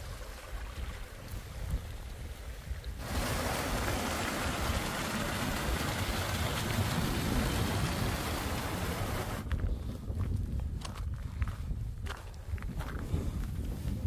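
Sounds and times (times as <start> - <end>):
wind rumble on microphone: 0.0 - 14.0
stream splashing over small fall: 2.9 - 9.4.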